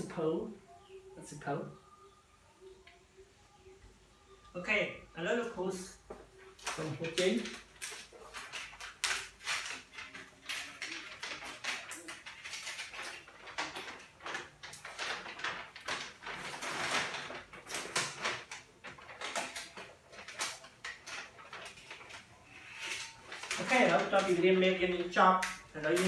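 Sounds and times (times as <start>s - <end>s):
paper sheet rustling and crinkling: 5.8s - 26.0s.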